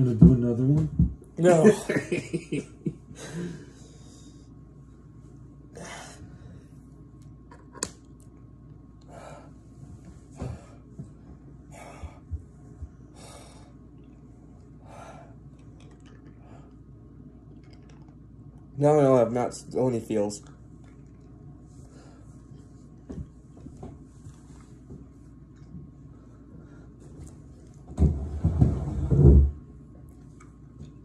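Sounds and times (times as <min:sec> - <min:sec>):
person breathing heavily: 0:03.1 - 0:04.5, 0:05.7 - 0:06.8, 0:09.1 - 0:09.6, 0:11.6 - 0:12.4, 0:13.0 - 0:13.8, 0:14.8 - 0:15.4.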